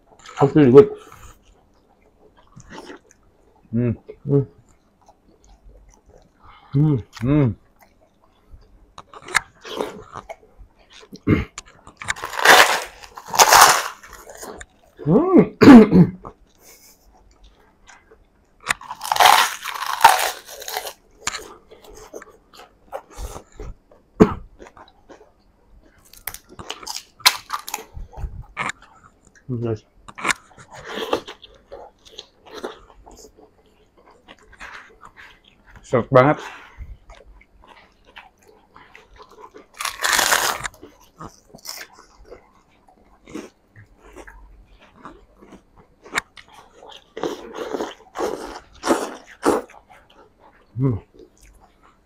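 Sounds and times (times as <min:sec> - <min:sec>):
chewing food: 0:00.0 - 0:15.2, 0:16.2 - 0:52.0
loud cough: 0:15.6 - 0:16.2.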